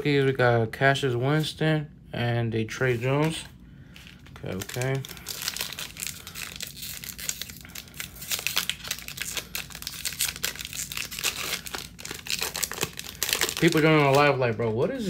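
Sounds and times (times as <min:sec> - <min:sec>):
foil wrapper tearing and crinkling: 0:04.0 - 0:14.5.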